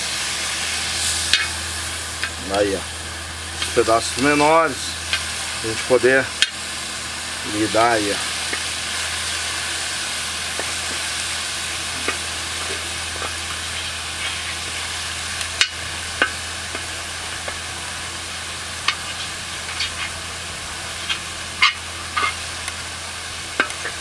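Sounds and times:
meat sizzling on a griddle: 0.0s - 24.0s.

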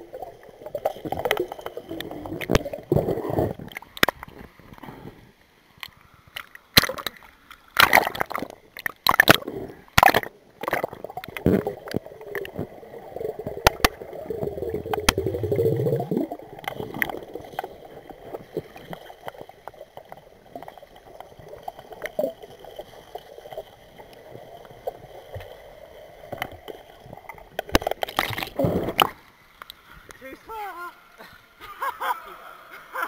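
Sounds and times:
underwater bubbling rumble: 0.0s - 4.3s, 10.4s - 27.6s.

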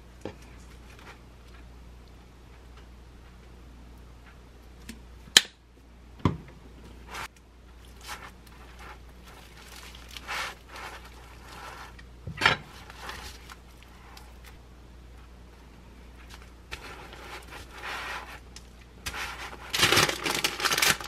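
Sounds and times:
crusty roll crackling: 7.1s - 14.6s, 16.1s - 21.0s.

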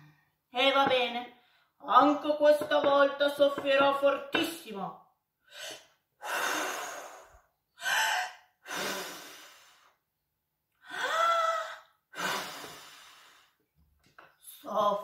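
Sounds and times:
woman blowing hard: 5.6s - 9.9s, 10.9s - 13.5s.

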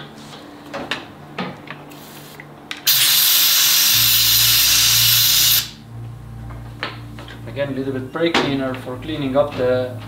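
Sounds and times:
compressed air blow gun hissing: 2.9s - 5.8s.

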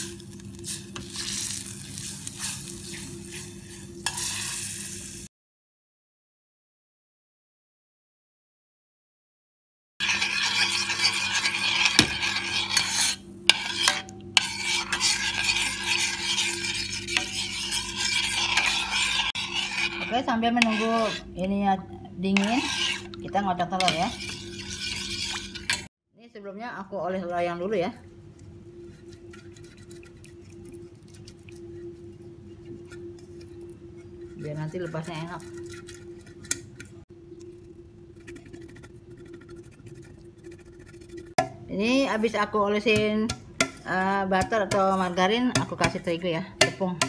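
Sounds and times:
metal ladle scraping a pot: 0.0s - 4.9s, 10.0s - 21.4s, 22.3s - 25.9s, 28.8s - 37.0s
steady hum: 10.0s - 47.0s.

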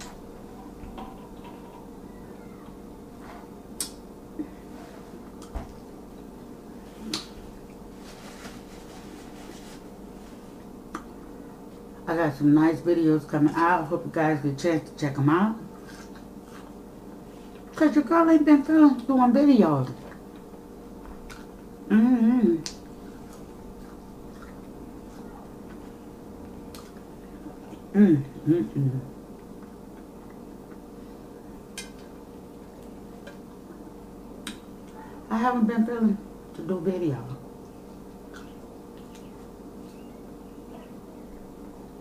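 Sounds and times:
steady low hum: 0.0s - 42.0s
chewing and mouth sounds: 20.0s - 21.7s, 22.6s - 28.4s, 29.3s - 31.0s, 31.6s - 35.1s, 37.6s - 41.0s
woman humming: 21.9s - 22.7s, 27.7s - 29.2s
mouth chewing wet clicks: 37.6s - 40.1s.

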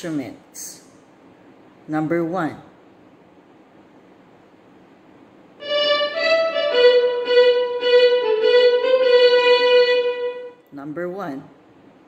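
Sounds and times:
violin playing: 5.6s - 10.6s.

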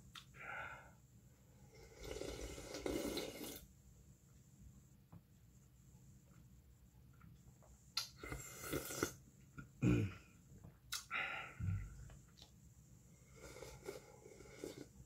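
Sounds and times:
slurping and gulping soup: 1.6s - 3.7s, 8.0s - 9.2s, 13.2s - 15.0s.

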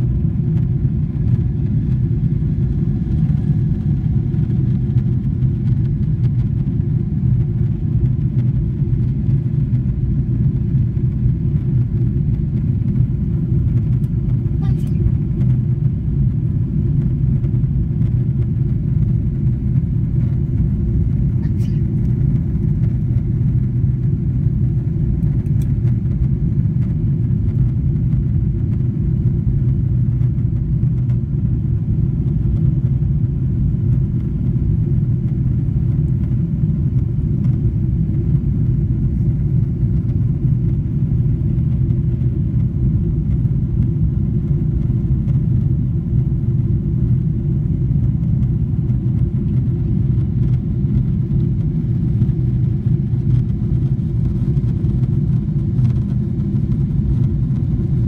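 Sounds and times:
jet engines droning: 0.0s - 58.0s.

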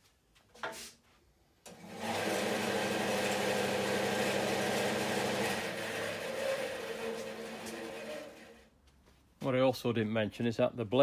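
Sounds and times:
bandsaw running: 1.7s - 8.7s.

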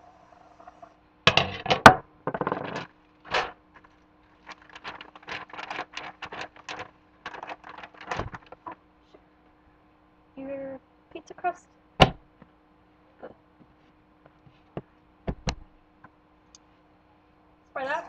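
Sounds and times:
plastic wrapper crinkling: 3.3s - 8.8s.

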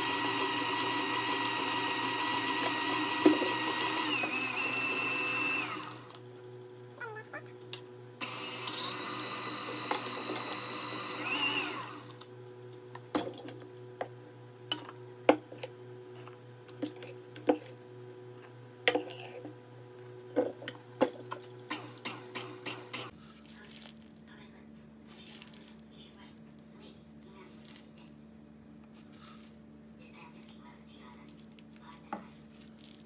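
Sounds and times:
stand mixer motor whine: 0.0s - 6.2s, 8.2s - 12.2s, 21.7s - 23.1s.

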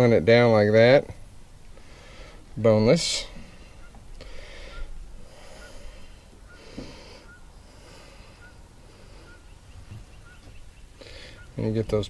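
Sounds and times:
man breathing heavily through nose: 1.7s - 2.6s, 3.3s - 9.7s, 10.9s - 11.6s
faint high chirp: 3.7s - 7.6s, 8.3s - 12.0s.

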